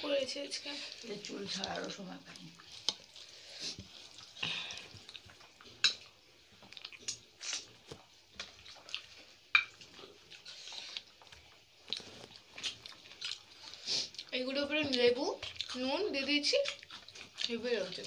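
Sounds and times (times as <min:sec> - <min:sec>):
fingers mixing food on plates: 0:00.0 - 0:18.0
wet chewing: 0:00.1 - 0:18.0
lip smacks: 0:02.6 - 0:14.3.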